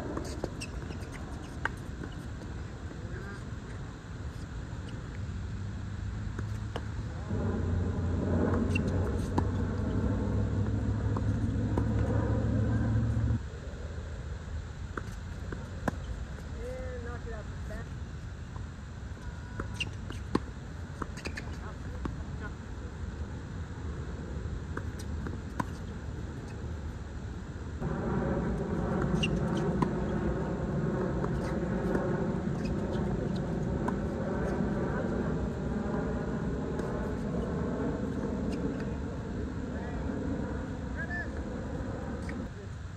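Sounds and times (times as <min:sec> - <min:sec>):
low motor rumble: 0:05.2 - 0:14.0
low rumble: 0:05.7 - 0:13.5, 0:27.6 - 0:42.6.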